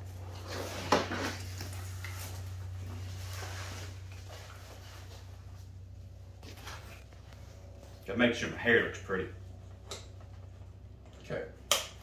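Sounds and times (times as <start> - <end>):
rustling of nylon gear: 0.0 - 5.7
steady low hum: 0.0 - 12.0.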